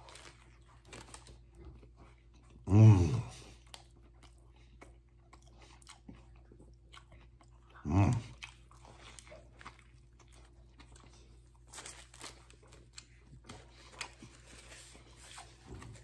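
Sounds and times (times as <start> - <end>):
man chewing a sandwich: 0.0 - 16.0
low vocal sound: 2.6 - 3.5, 7.8 - 8.4.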